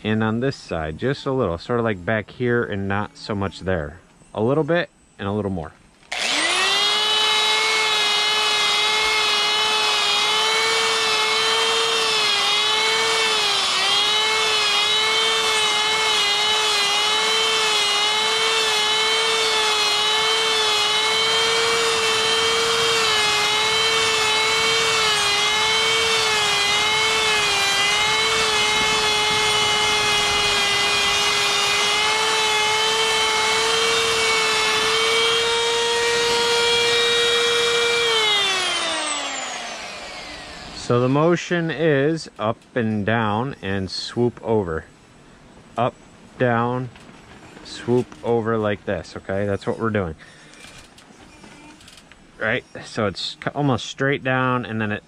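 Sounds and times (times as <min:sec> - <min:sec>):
rotary tool grinding wood: 0:06.1 - 0:41.5, 0:50.6 - 0:52.1.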